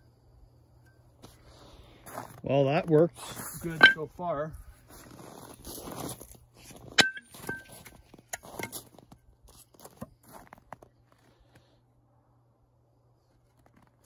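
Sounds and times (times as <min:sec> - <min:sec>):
metallic clank: 0:03.7 - 0:04.2, 0:07.0 - 0:08.8.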